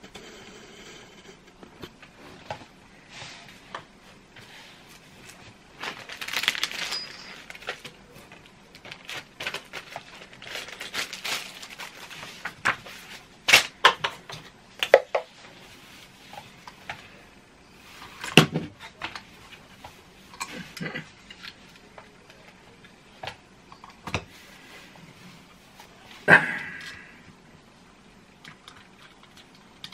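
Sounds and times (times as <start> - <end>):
paper pages rustling: 4.4 - 13.6.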